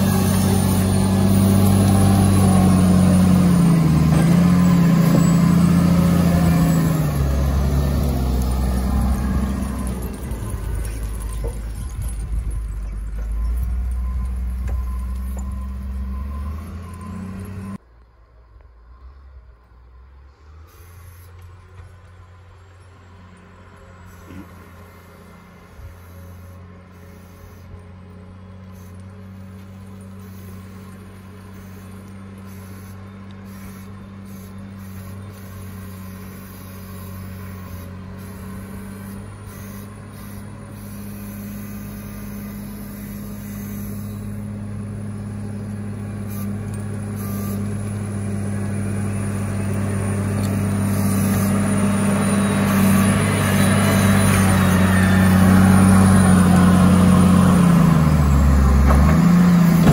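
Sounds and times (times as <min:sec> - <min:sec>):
wheel loader diesel engine: 0:00.0 - 0:59.9.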